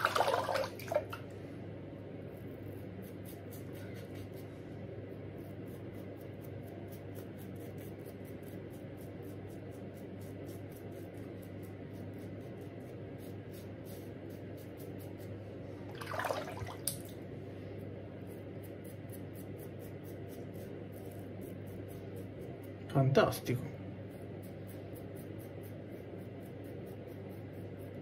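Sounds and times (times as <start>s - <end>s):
razor scraping stubble: 2.4s - 4.5s, 5.2s - 15.4s, 18.2s - 28.0s.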